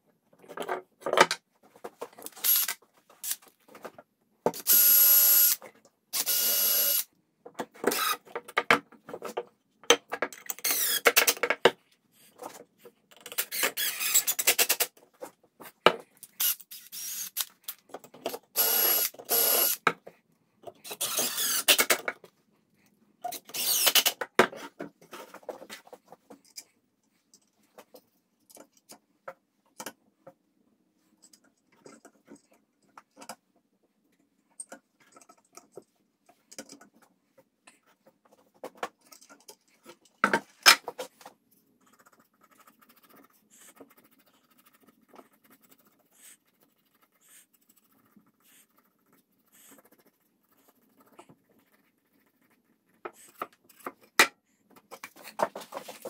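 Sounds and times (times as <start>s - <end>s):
cordless drill driving screws: 2.4s - 2.8s, 6.2s - 7.0s, 13.5s - 14.5s, 18.6s - 19.8s, 20.9s - 21.9s, 23.4s - 24.1s.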